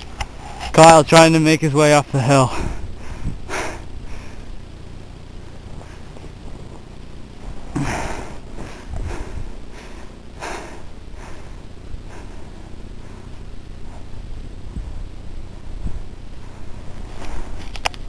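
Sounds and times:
person sniffing and breathing: 0:02.5 - 0:04.6, 0:07.7 - 0:14.2.

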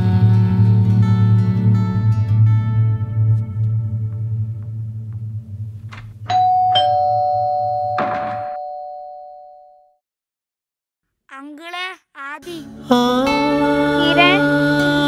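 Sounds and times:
guitar music: 0:00.0 - 0:05.6, 0:12.2 - 0:15.0
doors opening: 0:05.1 - 0:07.1
two-tone doorbell chime: 0:06.3 - 0:09.9.

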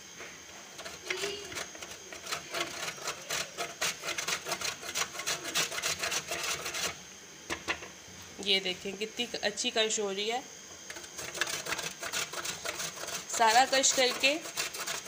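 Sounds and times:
cheese scraping on metal grater: 0:00.7 - 0:07.0, 0:10.9 - 0:15.0.

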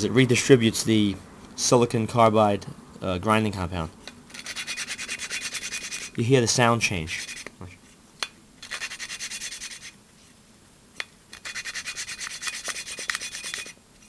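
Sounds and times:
valve grinding gritty rasping: 0:04.3 - 0:06.2, 0:11.3 - 0:13.8.

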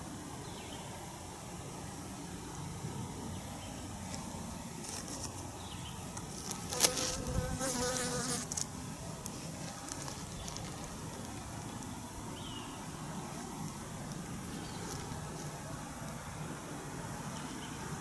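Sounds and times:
insect buzzing: 0:04.8 - 0:17.9.

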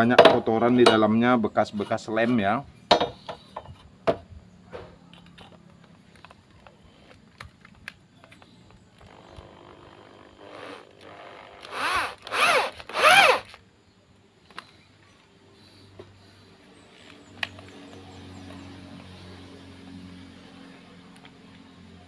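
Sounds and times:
electric drill trigger bursts: 0:09.0 - 0:13.6.

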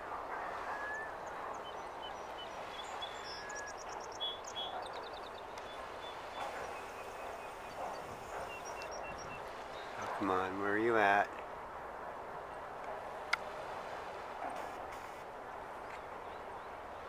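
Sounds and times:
steady outdoor hiss: 0:00.0 - 0:17.0
small birds chirping: 0:00.8 - 0:10.4
high bird trills: 0:01.8 - 0:04.9.

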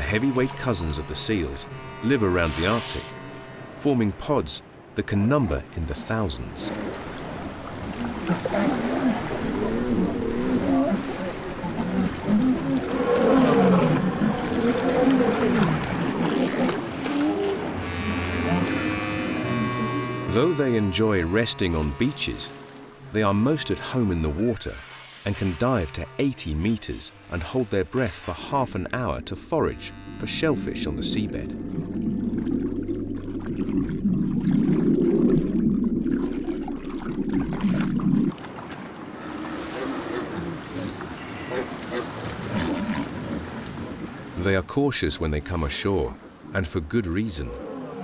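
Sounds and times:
muffled underwater bubbling: 0:30.2 - 0:38.6.

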